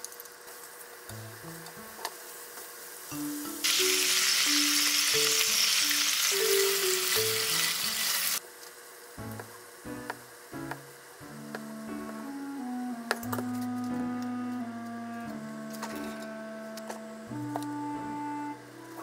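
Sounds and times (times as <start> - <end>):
sauce sizzling in frying pan: 0.4 - 8.4.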